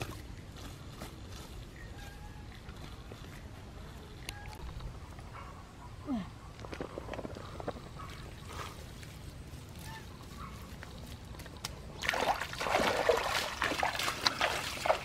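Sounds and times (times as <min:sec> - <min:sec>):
rubber boots wading through water: 0:09.9 - 0:15.0
splashing in muddy water: 0:11.3 - 0:15.0.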